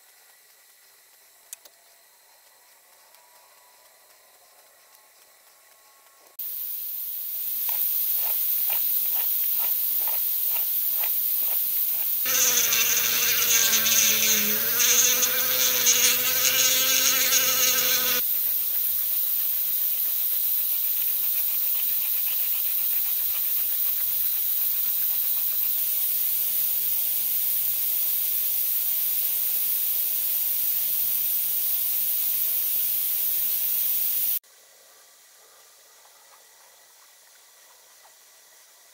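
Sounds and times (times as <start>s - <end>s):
steady high hiss: 0.0s - 34.7s
buzzing drone: 12.3s - 18.2s
hand file rasping on wood: 12.3s - 18.3s.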